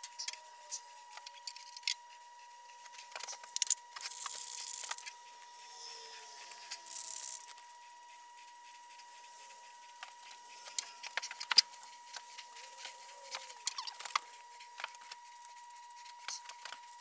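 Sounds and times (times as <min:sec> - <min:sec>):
spray paint can hissing: 0:06.6 - 0:07.6.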